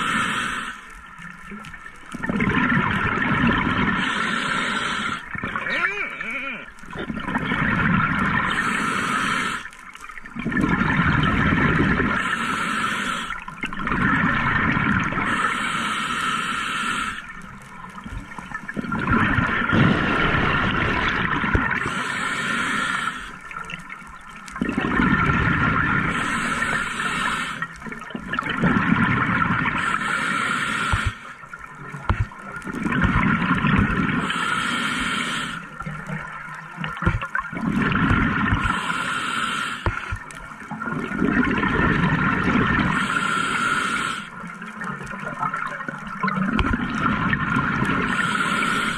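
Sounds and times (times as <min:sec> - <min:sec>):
regulator inhalation hiss: 0:00.0 - 0:00.9, 0:03.9 - 0:05.3, 0:08.4 - 0:09.8, 0:12.2 - 0:13.4, 0:15.1 - 0:17.3, 0:21.8 - 0:23.4, 0:26.0 - 0:27.8, 0:29.7 - 0:31.4, 0:34.2 - 0:35.7, 0:38.6 - 0:40.1, 0:42.8 - 0:44.4, 0:48.0 - 0:48.9
exhaled bubbles rushing: 0:01.0 - 0:05.8, 0:06.9 - 0:12.5, 0:13.2 - 0:15.5, 0:17.0 - 0:22.2, 0:22.8 - 0:30.0, 0:30.8 - 0:34.4, 0:35.5 - 0:38.9, 0:39.8 - 0:43.1, 0:44.4 - 0:48.7.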